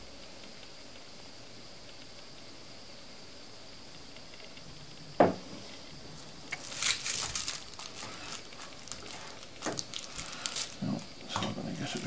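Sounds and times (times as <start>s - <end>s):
rustling and crackling of foil: 5.6s - 12.0s.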